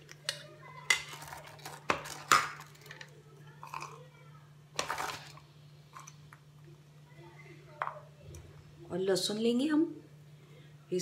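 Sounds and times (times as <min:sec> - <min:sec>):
ingredients clattering and rustling: 0:00.0 - 0:04.1, 0:04.7 - 0:06.4.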